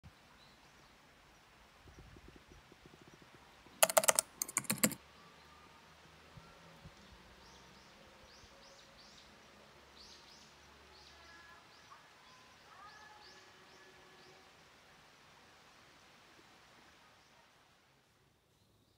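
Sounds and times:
rapid clicking bursts: 3.8s - 5.0s.

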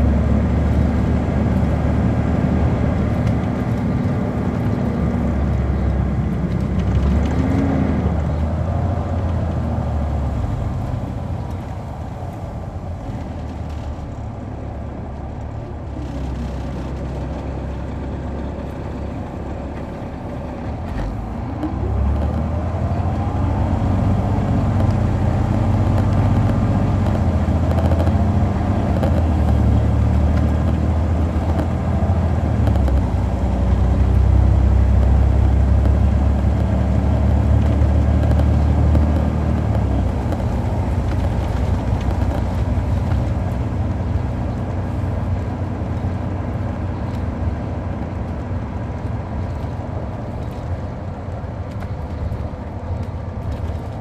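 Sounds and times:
diesel bus engine running: 0.0s - 54.0s.

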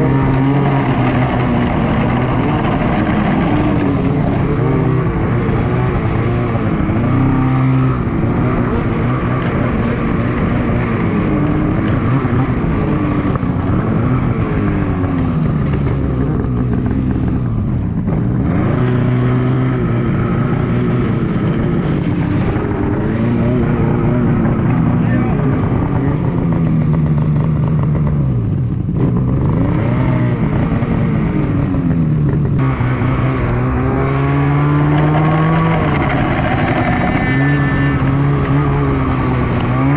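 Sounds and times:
snowmobile engine running: 0.0s - 39.9s.

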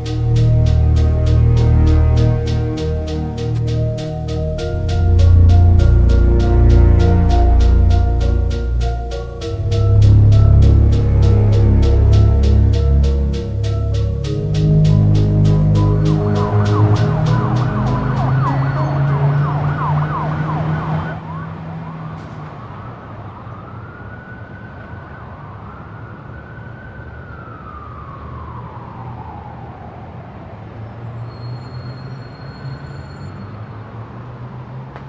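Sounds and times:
low steady hum: 0.0s - 19.4s
music: 0.0s - 20.0s
siren wailing: 0.0s - 30.2s.

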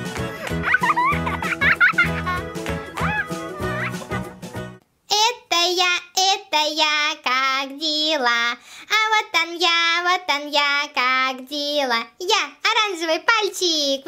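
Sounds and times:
child singing: 5.1s - 14.0s.

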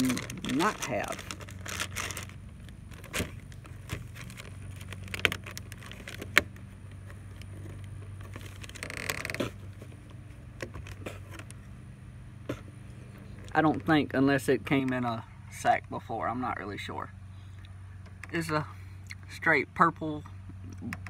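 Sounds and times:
plastic crinkling rustle: 0.0s - 11.6s
steady low hum: 0.0s - 21.0s.

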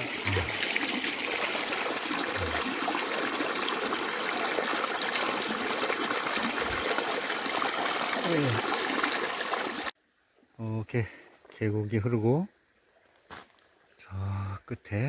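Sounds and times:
water splashing into pool: 0.0s - 9.9s
stream running over rocks: 0.0s - 10.6s.

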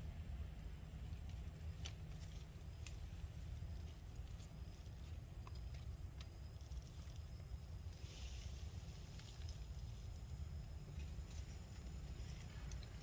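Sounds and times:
leaves rustling: 0.0s - 13.0s.

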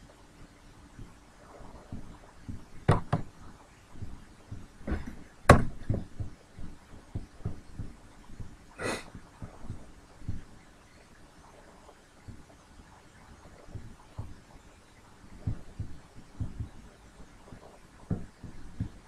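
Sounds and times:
desk and mouse handling knocks: 2.8s - 3.3s, 4.9s - 6.3s.

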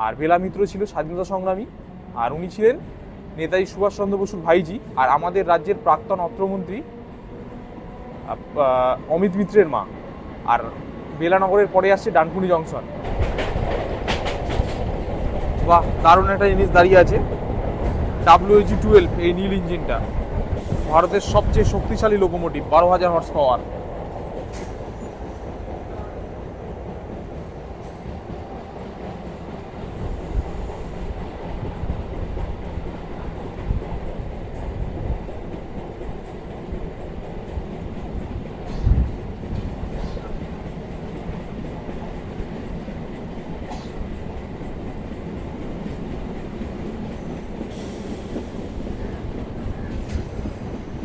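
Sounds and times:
train wheels rumbling on track: 0.0s - 51.0s
heavy train thumps: 13.0s - 19.1s, 23.7s - 51.0s.

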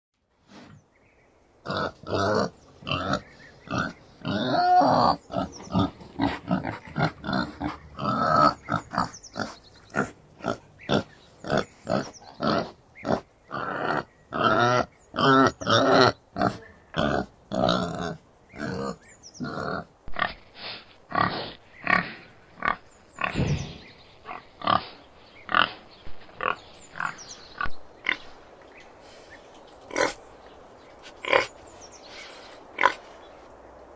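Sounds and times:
boar grunting: 1.6s - 28.3s.

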